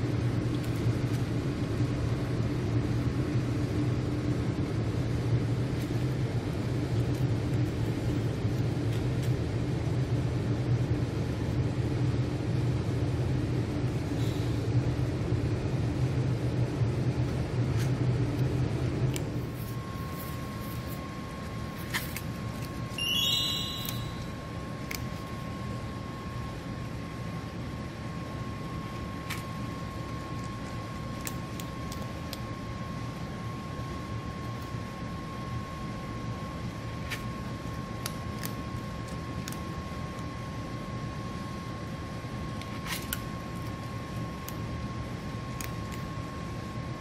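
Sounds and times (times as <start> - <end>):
steady low hum: 0.0 - 47.0
steady high tone: 22.9 - 24.6
shimmering chime-like sound: 23.0 - 24.3
cat crunching dry kibble: 29.4 - 32.6.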